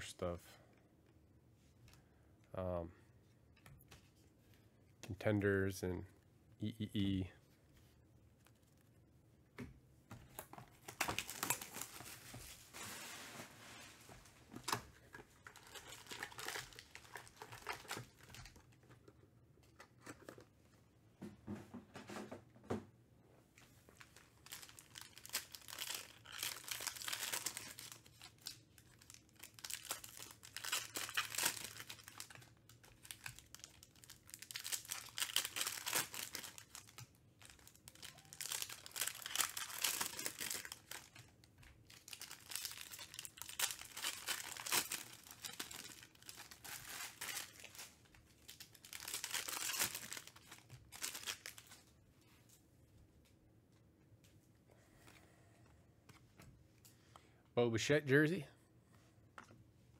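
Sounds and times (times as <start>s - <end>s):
card pack wrappers tearing: 10.8s - 12.2s, 15.4s - 18.7s, 24.1s - 41.3s, 41.9s - 51.8s.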